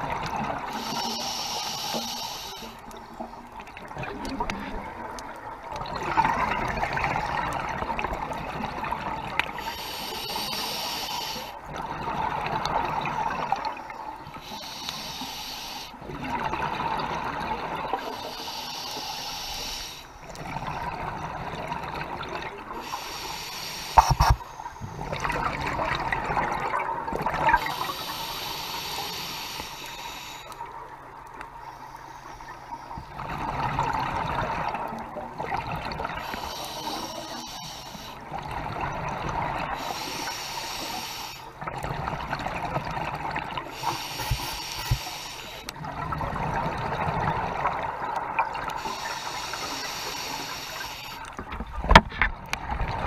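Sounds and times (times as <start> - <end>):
regulator hissing inhales: 0.7 - 2.9, 9.6 - 11.6, 14.4 - 16.0, 18.0 - 20.2, 22.8 - 25.0, 27.6 - 30.7, 36.2 - 38.2, 39.8 - 41.6, 43.6 - 45.7, 48.7 - 51.4
exhaled bubbles rushing: 3.7 - 9.3, 24.0 - 27.8.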